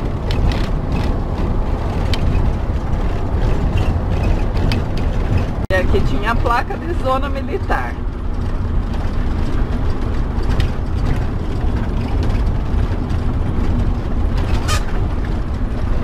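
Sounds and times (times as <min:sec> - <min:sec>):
engine and road rumble: 0:00.0 - 0:16.0
rattles and clicks in cab: 0:00.0 - 0:16.0.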